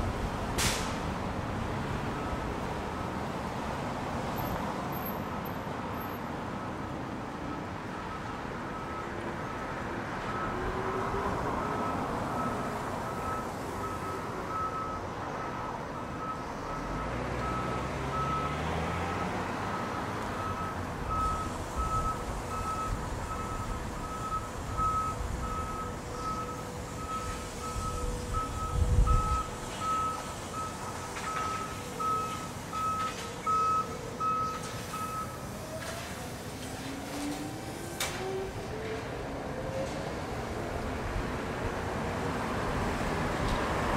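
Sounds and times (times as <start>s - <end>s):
electronic reversing alarm beeping: 19.7s - 35.4s.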